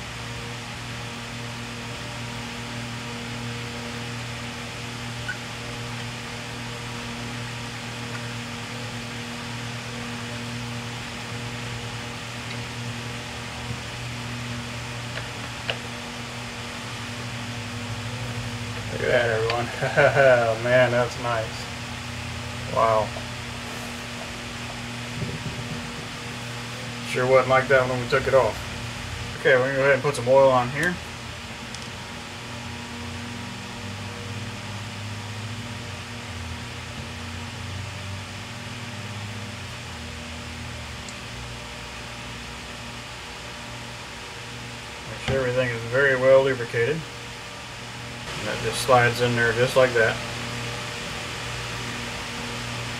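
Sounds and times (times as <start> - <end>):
low electrical hum: 0.0 - 52.9
shop background hiss: 17.8 - 28.7.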